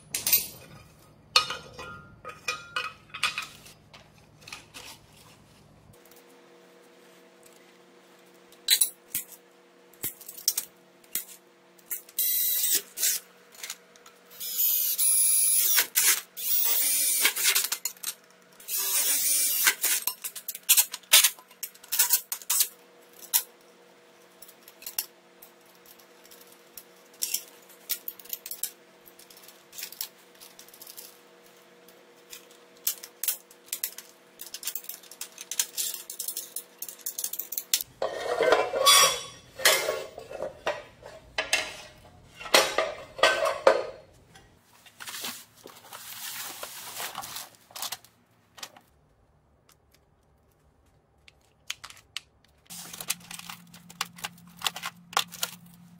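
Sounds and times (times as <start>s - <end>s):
metal parts clinking: 32.3s - 40.8s.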